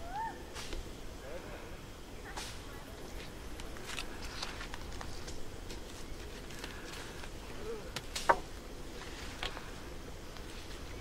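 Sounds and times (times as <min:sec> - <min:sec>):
dry sticks cracking and clattering: 0:03.2 - 0:10.9.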